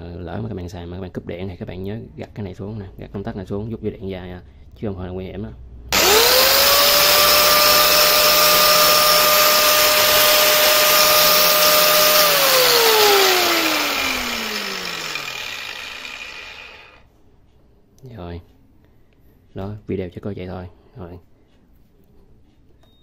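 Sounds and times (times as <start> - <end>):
angle grinder whining: 5.9 - 17.0.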